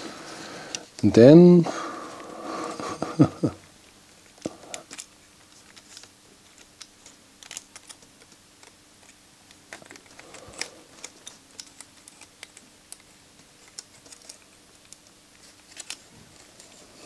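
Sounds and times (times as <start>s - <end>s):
small parts clicking and tapping: 4.2s - 16.5s.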